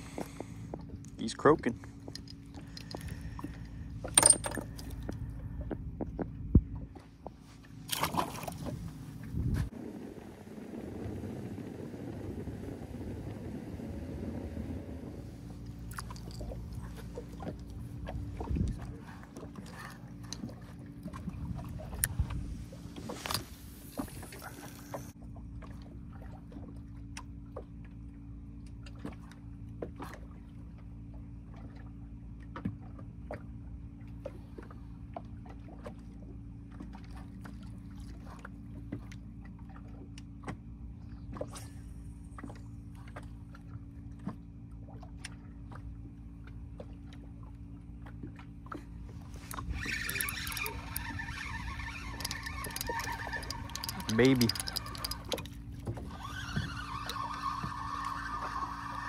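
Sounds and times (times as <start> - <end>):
boat motor humming: 0.0 - 59.0
clicks and knocks on boat: 42.4 - 57.3.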